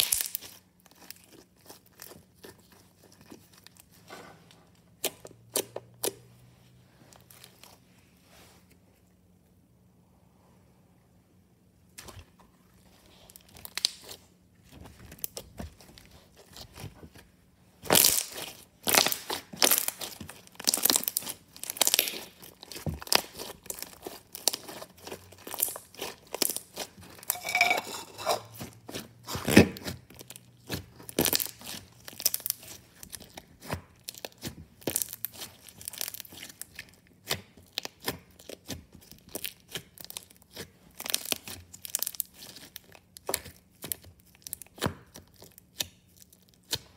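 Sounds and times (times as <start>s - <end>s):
slime crackling and popping: 0.0s - 3.8s, 13.2s - 16.9s, 17.8s - 28.1s, 29.3s - 46.9s.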